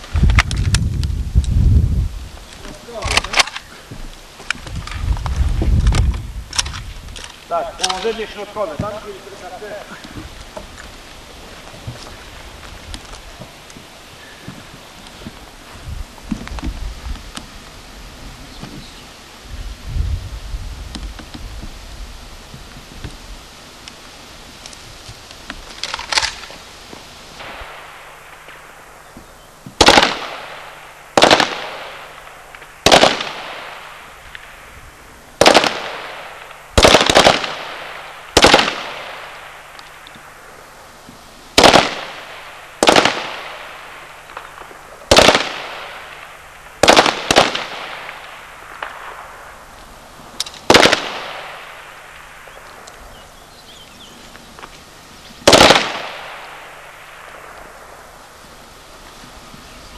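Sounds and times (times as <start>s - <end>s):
rifle shots with echo: 29.8s - 34.7s, 35.4s - 40.0s, 41.6s - 49.6s, 50.6s - 52.8s, 55.4s - 58.2s.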